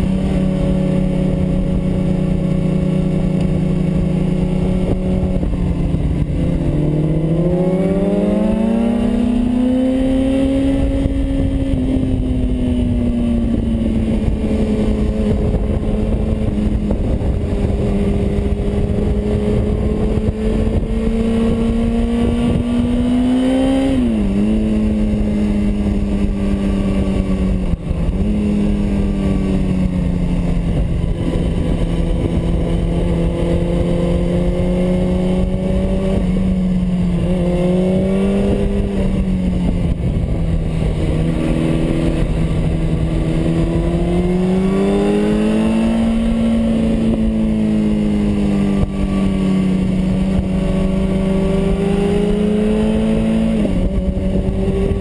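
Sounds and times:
motorcycle engine running: 0.0 - 55.0
wind rushing over microphone: 0.0 - 55.0.

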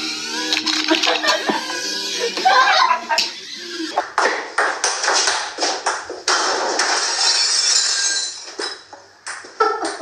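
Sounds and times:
glass shattering crash: 6.4 - 8.8.

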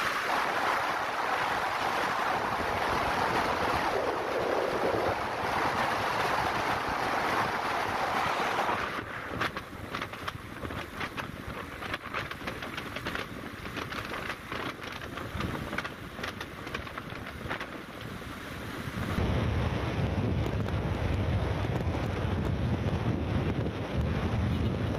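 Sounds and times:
wind buffeting microphone: 0.0 - 24.9
small crackles: 8.7 - 18.2.

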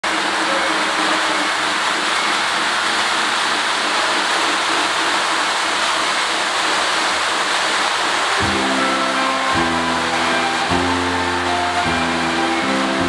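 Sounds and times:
steady tones: 0.0 - 13.0
toy train running on track: 0.0 - 13.0.

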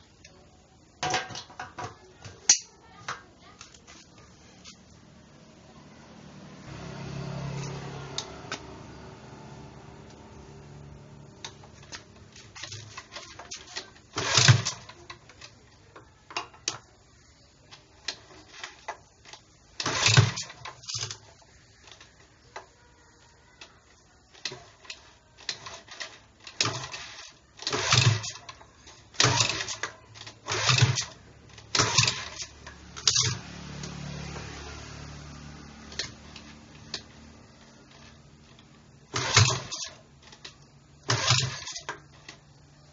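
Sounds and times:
generator engine hum: 3.4 - 12.7
generator recoil starter pulls: 11.5 - 15.4, 18.0 - 21.2, 24.3 - 33.4, 37.9 - 42.4.

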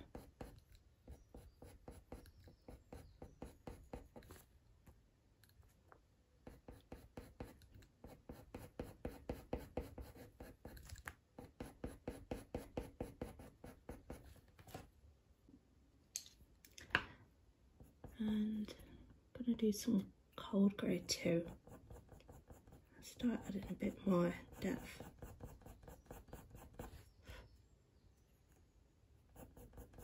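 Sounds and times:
pencil scratching on paper: 0.0 - 4.4, 6.4 - 14.4, 20.9 - 27.2, 29.3 - 30.0.

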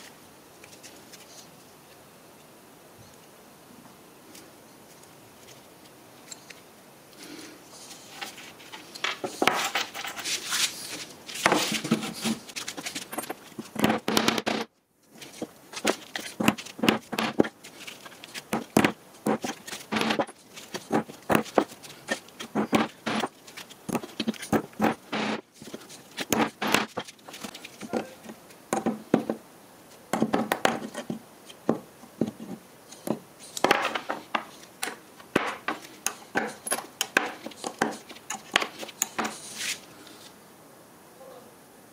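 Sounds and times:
small hard objects clicking on wood: 33.0 - 39.4.

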